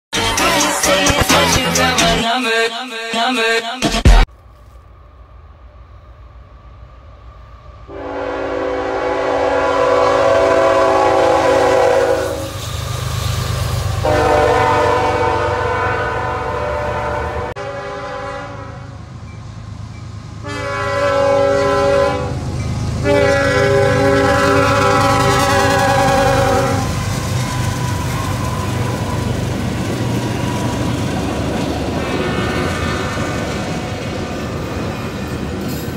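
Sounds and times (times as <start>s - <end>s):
passing train rumble: 4.3s - 35.9s
locomotive air horn blasts: 7.9s - 12.6s, 14.0s - 19.0s, 20.4s - 22.4s, 23.0s - 27.0s.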